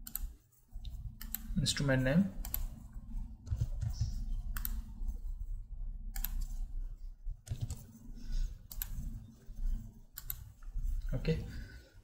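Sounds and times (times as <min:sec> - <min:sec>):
keyboard typing: 0:02.4 - 0:02.8, 0:03.4 - 0:04.9, 0:06.1 - 0:06.6, 0:07.4 - 0:08.0, 0:08.6 - 0:10.7
mouse clicks: 0:03.5 - 0:04.8, 0:06.2 - 0:06.5.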